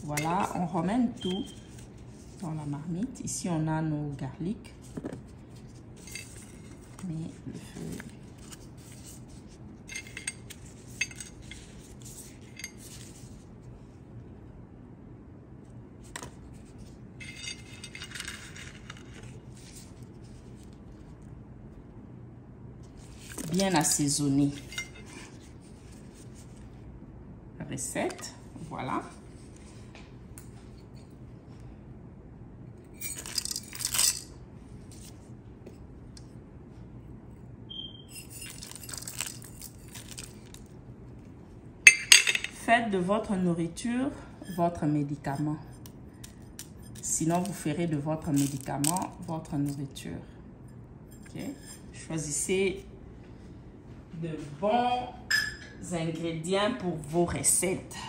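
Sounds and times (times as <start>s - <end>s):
low steady hum: 0.0s - 58.0s
peppercorns rattling into pot: 33.0s - 34.3s, 38.1s - 40.6s, 48.3s - 49.8s
crinkly leaf rustle: 38.5s - 40.7s.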